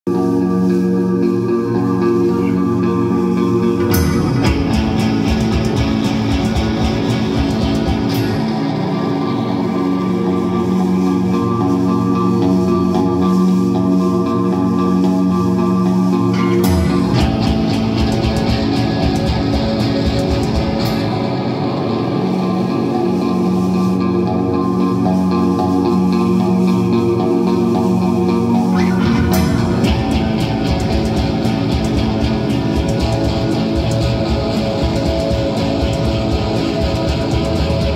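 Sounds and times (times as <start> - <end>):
bass guitar: 0.0 - 37.9
drums: 0.1 - 37.9
electric guitar: 0.1 - 37.9.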